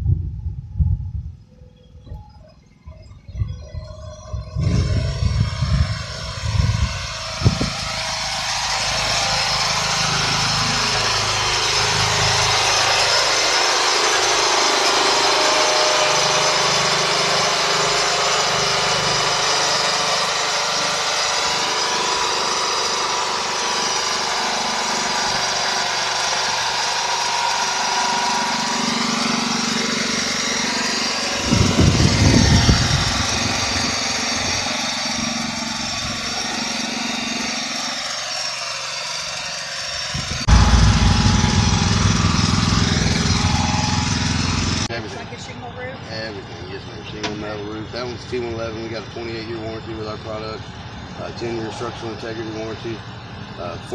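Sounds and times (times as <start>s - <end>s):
low rumbles: 0.0s - 14.5s, 40.2s - 44.9s
small engine running: 1.4s - 53.9s.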